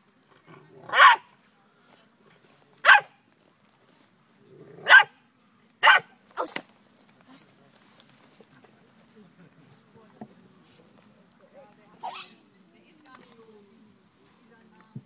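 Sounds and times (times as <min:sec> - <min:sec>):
puppy barking: 0:00.9 - 0:01.3, 0:02.8 - 0:03.1, 0:04.8 - 0:05.1, 0:05.8 - 0:06.1.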